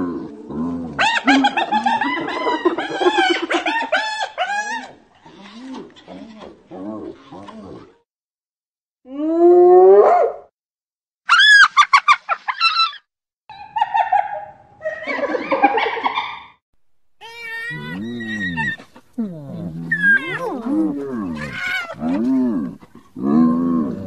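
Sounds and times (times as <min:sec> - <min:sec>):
hyenas calling: 0:00.9 - 0:07.9, 0:17.2 - 0:24.0
hyena cackling giggle: 0:01.0 - 0:04.8, 0:13.7 - 0:16.5.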